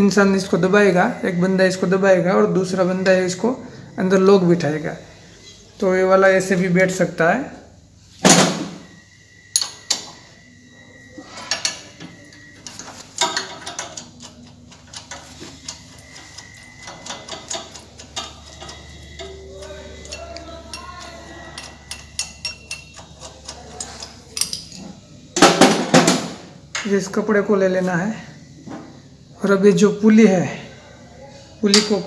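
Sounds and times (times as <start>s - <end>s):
metal clicks and clinks: 11.4s - 25.0s.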